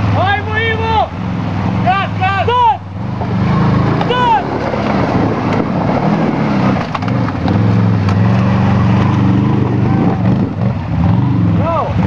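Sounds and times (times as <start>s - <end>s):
atv engine running under load: 0.0s - 12.0s
sharp cracks of wood: 6.6s - 9.2s.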